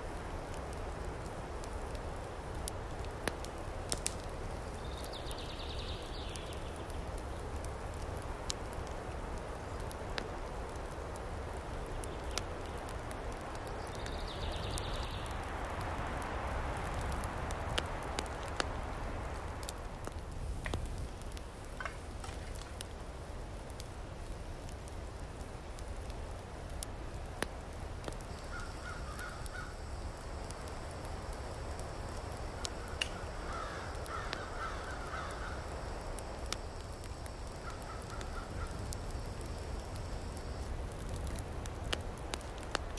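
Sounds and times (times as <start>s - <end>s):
wind through trees: 0.0s - 42.9s
crow cawing: 28.5s - 29.7s, 33.5s - 35.6s.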